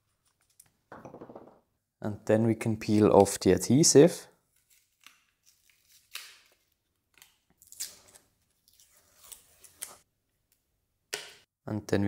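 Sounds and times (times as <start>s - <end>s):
foil tape crinkling and tearing: 4.6s - 10.0s.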